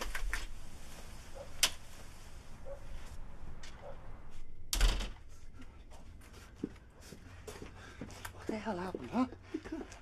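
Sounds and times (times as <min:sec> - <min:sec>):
door thud: 0:04.7 - 0:05.2.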